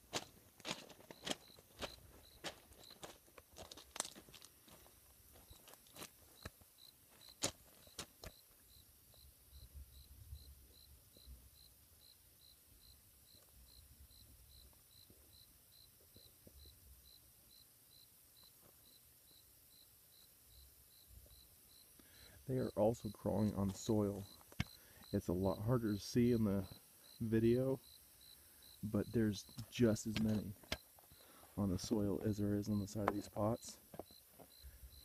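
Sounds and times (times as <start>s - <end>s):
footsteps: 0.0s - 8.6s, 28.9s - 35.0s
insect chirping: 0.0s - 35.0s.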